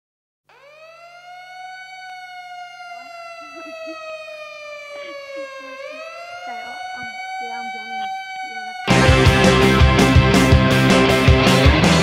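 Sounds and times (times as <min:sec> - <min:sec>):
siren wailing: 0:00.5 - 0:11.3
faint voices: 0:01.6 - 0:09.2.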